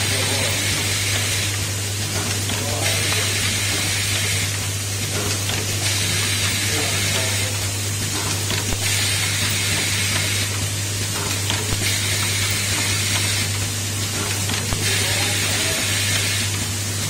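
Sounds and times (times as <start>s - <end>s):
compressed air hissing bursts: 8.8s - 10.6s, 11.8s - 13.5s.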